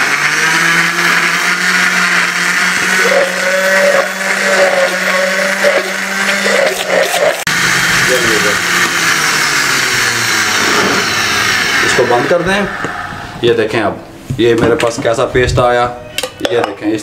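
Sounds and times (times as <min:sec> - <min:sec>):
blender motor grinding: 0:00.0 - 0:12.4.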